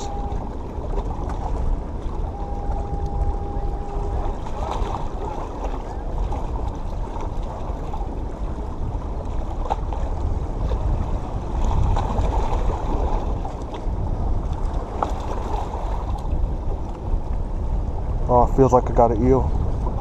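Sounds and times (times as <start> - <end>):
wind on microphone: 0.0 - 20.0
small waves washing on rocks: 4.0 - 13.8, 14.4 - 16.6.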